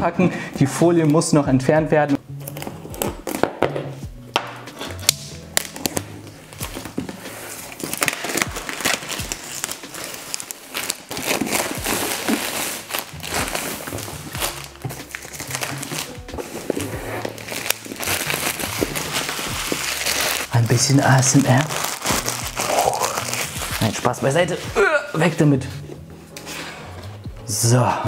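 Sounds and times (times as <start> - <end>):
background music: 0.0 - 28.0
plastic film crinkling: 4.7 - 24.7.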